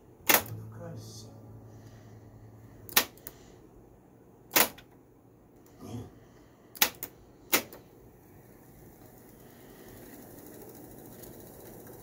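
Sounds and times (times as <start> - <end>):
tape deck buttons clicking: 0.3 - 0.6, 2.9 - 3.3, 6.8 - 7.8.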